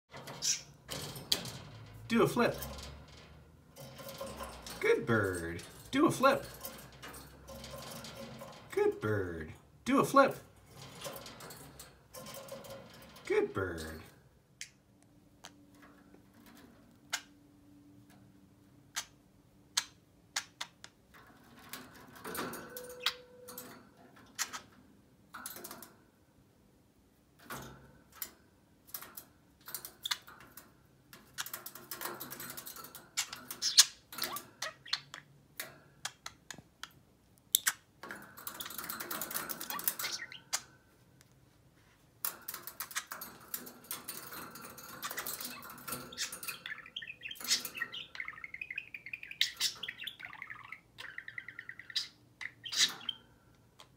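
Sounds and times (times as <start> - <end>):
beaks clicking on wire cage: 27.4 - 40.8, 42.2 - 50.1.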